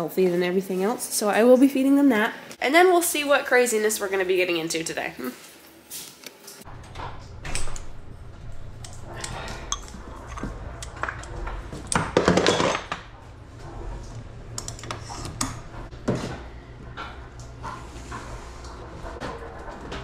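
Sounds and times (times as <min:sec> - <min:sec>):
low machine hum: 0:06.6 - 0:20.0.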